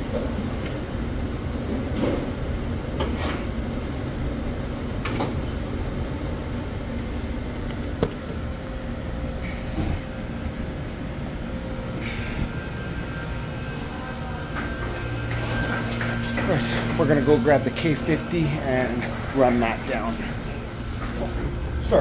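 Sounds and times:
kitchen machinery rumbling: 6.6s - 22.0s.

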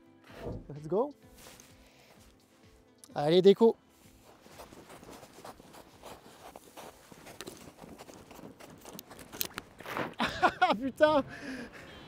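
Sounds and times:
boots crunching in snow: 1.3s - 2.4s, 4.0s - 10.2s
fabric rustling: 1.3s - 2.4s, 4.1s - 10.2s.

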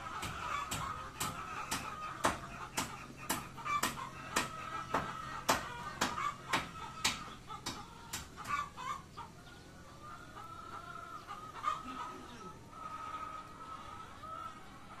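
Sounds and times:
chickens clucking: 0.0s - 15.0s.

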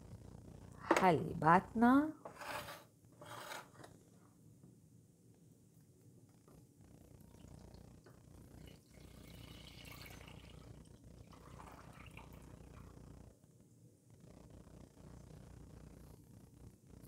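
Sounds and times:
milk pouring into metal pot: 8.7s - 10.6s, 11.3s - 12.8s.

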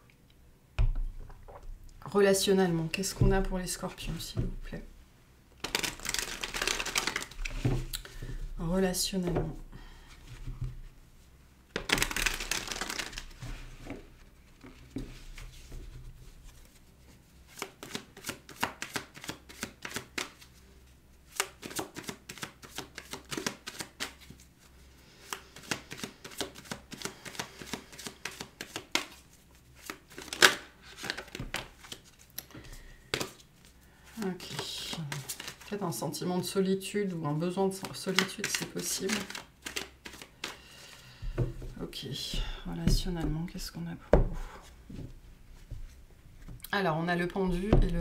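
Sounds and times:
cards shuffling: 5.6s - 8.0s, 11.7s - 14.0s, 17.5s - 20.5s, 21.3s - 24.4s, 25.2s - 33.7s, 34.4s - 35.7s, 37.7s - 40.6s.

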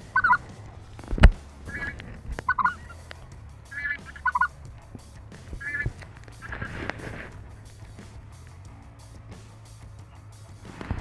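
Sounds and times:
geese honking: 0.0s - 8.2s.

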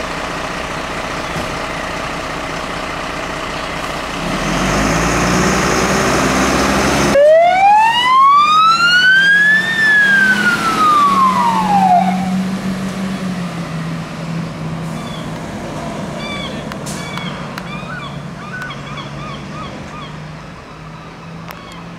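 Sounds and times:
fire engine diesel revving: 0.0s - 20.8s
siren wail: 7.1s - 12.5s.

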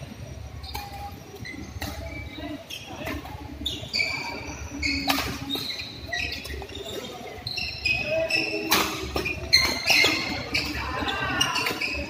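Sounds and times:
shoes squeaking on court: 0.4s - 12.0s.

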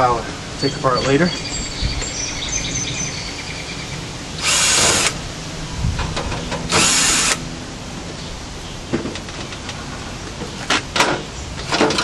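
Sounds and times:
cordless drill spinning: 4.4s - 5.2s, 6.7s - 7.4s.

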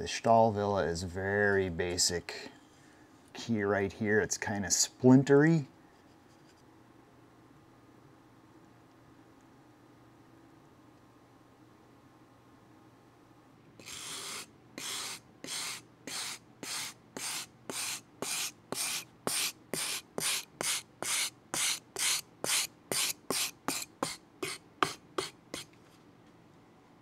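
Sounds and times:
wire brush scraping metal file: 13.8s - 25.7s.

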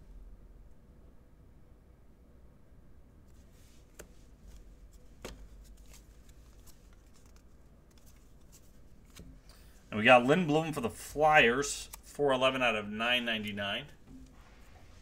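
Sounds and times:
trading cards clicking and rustling: 3.8s - 9.8s, 10.5s - 12.2s.

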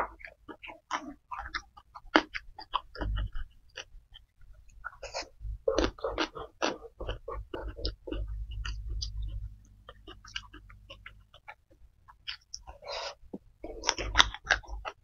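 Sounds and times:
person chewing food: 0.0s - 15.0s.

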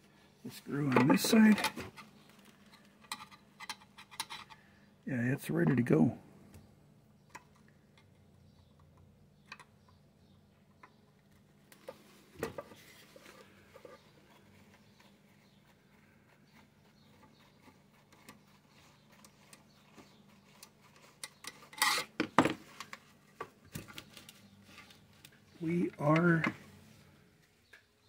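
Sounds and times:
screwdriver clicks and scrapes: 20.6s - 22.2s.

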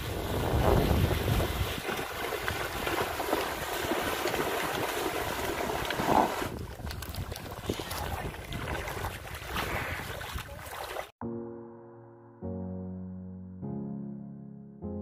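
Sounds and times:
wind buffeting microphone: 0.0s - 10.5s
buffaloes splashing through water: 0.0s - 11.2s.

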